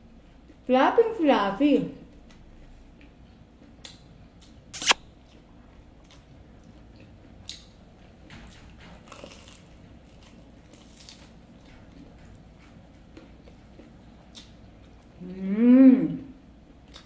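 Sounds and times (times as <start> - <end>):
soft chewing: 2.1 - 15.4, 16.6 - 17.0
sharp crunch: 4.7 - 5.1.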